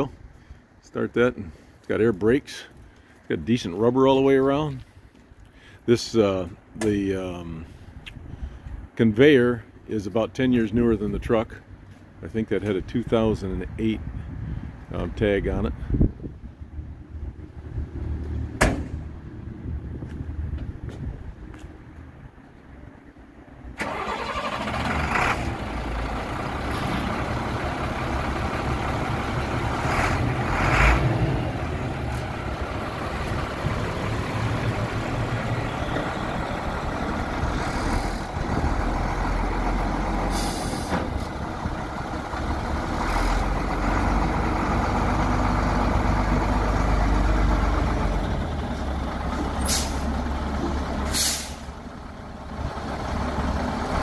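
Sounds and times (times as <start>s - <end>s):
diesel truck engine rumbling: 0.0s - 54.0s
air brake hisses: 40.3s - 41.0s, 49.6s - 50.1s, 51.1s - 51.7s.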